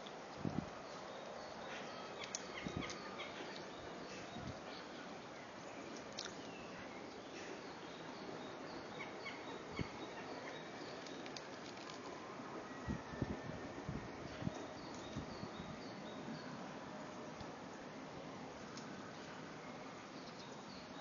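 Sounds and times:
outdoor background noise: 0:00.0 - 0:21.0
birds chirping: 0:00.5 - 0:11.5.

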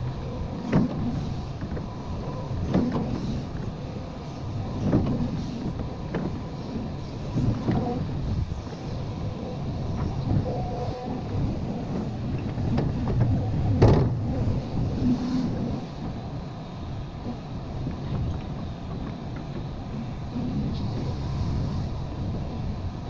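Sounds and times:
excavator engine and hydraulics: 0:00.0 - 0:23.0.

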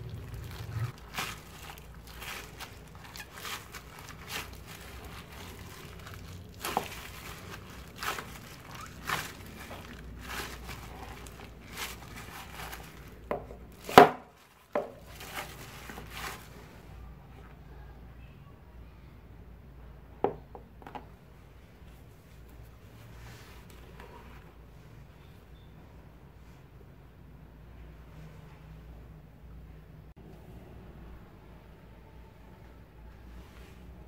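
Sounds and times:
plastic crinkling: 0:00.0 - 0:16.8.

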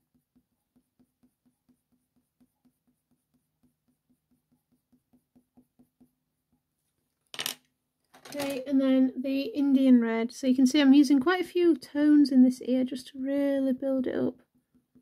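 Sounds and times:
pencil strokes on paper: 0:00.0 - 0:06.9, 0:10.8 - 0:15.0.

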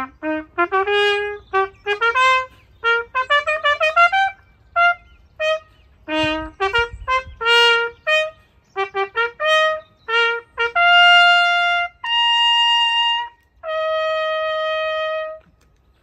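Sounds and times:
trumpet bugle call: 0:00.0 - 0:15.6.

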